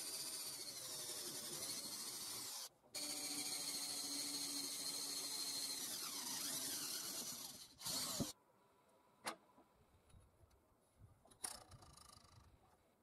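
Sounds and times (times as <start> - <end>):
cordless drill cutting sheet metal: 0.0 - 8.3.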